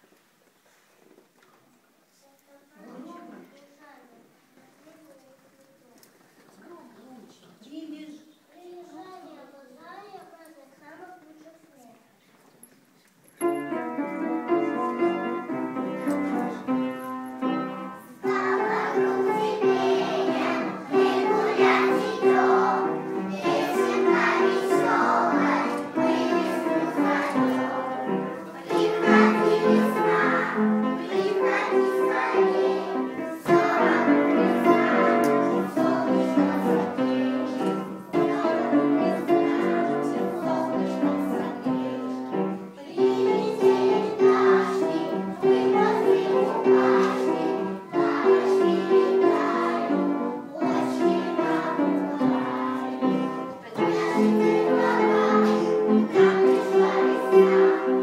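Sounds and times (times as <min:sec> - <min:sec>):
instrumental accompaniment: 0:13.4 - 0:58.0
children singing a song: 0:13.8 - 0:58.0.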